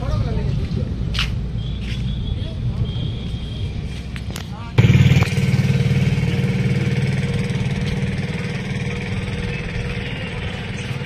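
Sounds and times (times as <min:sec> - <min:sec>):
engine humming: 0:04.8 - 0:11.0.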